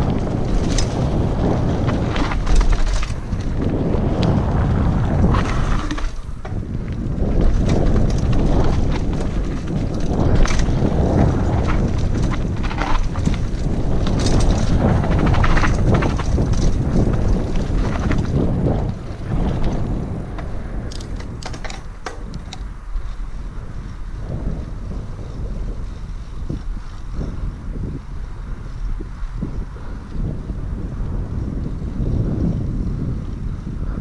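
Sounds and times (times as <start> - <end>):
tyres on dirt and leaves: 0.0 - 24.6
bike knocking and rattling: 0.0 - 34.0
wind rumble on microphone: 0.0 - 34.0.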